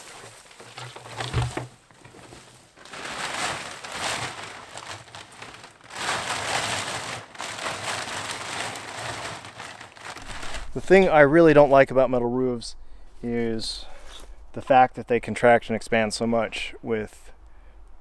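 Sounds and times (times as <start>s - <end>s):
plastic tarp crinkling: 0.0s - 12.1s
footsteps through brush: 9.8s - 11.2s, 13.0s - 14.5s.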